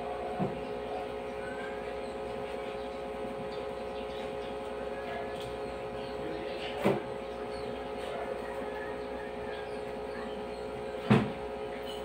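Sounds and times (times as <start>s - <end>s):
machine hum with held tones: 0.0s - 12.0s.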